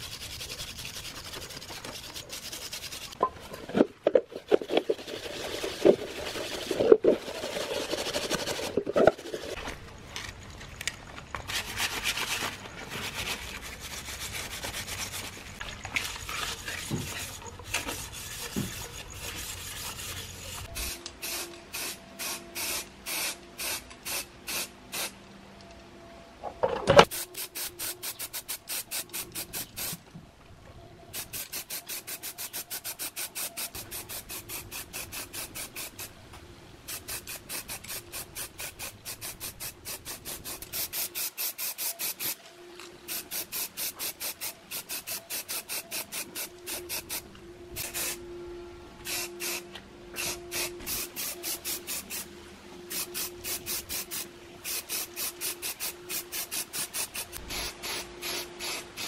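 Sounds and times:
spray paint can bursts: 0:20.1 - 0:25.2, 0:27.1 - 0:30.0, 0:31.1 - 0:36.1, 0:36.9 - 0:42.4, 0:43.1 - 0:47.2, 0:47.8 - 0:48.2, 0:49.0 - 0:49.6, 0:50.2 - 0:52.3, 0:52.9 - 0:59.0.

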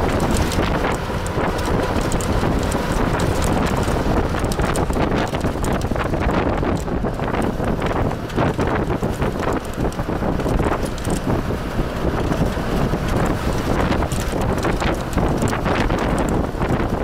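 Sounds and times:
rattling clicks: 0:00.0 - 0:11.3
road rumble: 0:00.0 - 0:17.0
wind buffeting microphone: 0:00.0 - 0:17.0.

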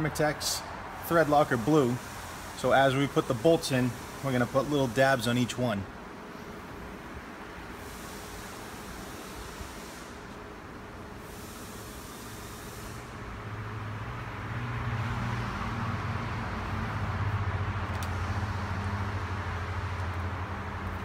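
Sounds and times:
low engine hum: 0:13.0 - 0:21.0.

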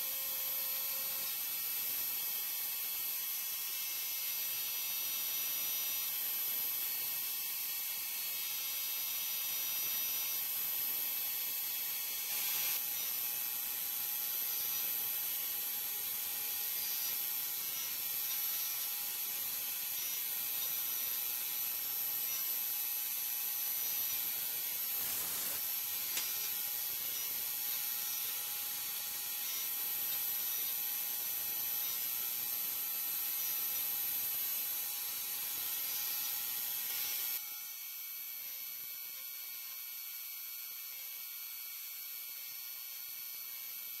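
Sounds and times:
high-pitched spindle whine: 0:00.0 - 0:37.9
hiss of milling cut: 0:24.8 - 0:26.5.

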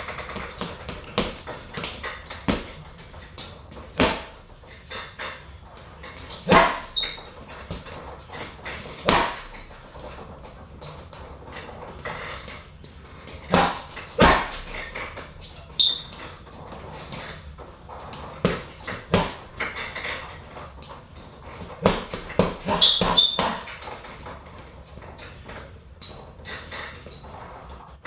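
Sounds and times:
punches thudding on heavy bag: 0:00.0 - 0:03.0, 0:03.9 - 0:04.4, 0:06.2 - 0:07.9, 0:08.9 - 0:09.7, 0:13.4 - 0:15.2, 0:18.4 - 0:19.8, 0:21.8 - 0:23.8
brief high squeaks: 0:06.5 - 0:07.4, 0:15.6 - 0:16.1, 0:22.7 - 0:23.6.

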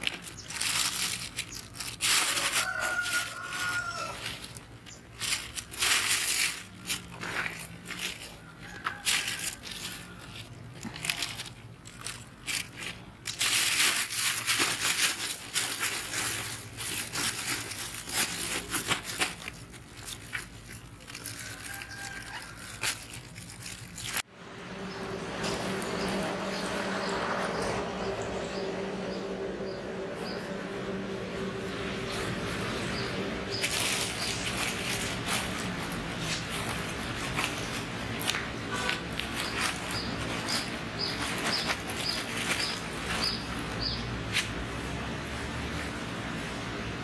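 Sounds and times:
vegetable plants rustling and snapping: 0:00.0 - 0:24.2, 0:32.1 - 0:44.8.

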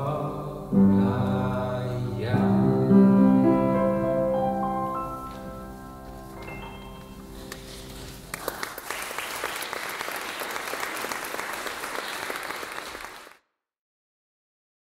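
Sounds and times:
piano chord: 0:00.0 - 0:08.4
audience applause: 0:08.3 - 0:13.4.

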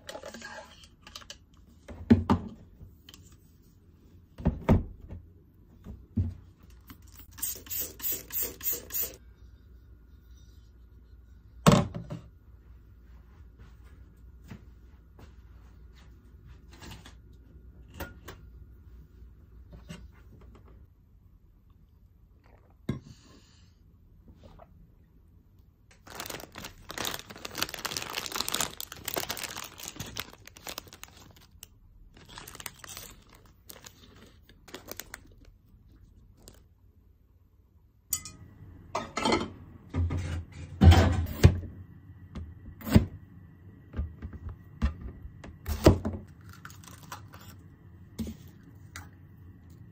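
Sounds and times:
plastic wrapper crinkling and tearing: 0:25.9 - 0:36.7, 0:46.4 - 0:47.5.

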